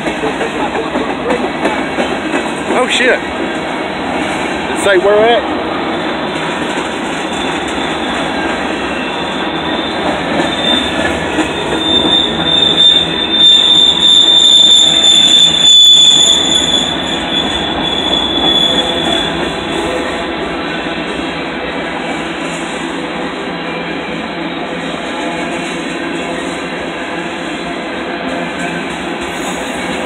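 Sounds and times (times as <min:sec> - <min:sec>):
train wheels clattering on rails: 0:00.0 - 0:30.0
high wheel squeal: 0:06.2 - 0:20.2.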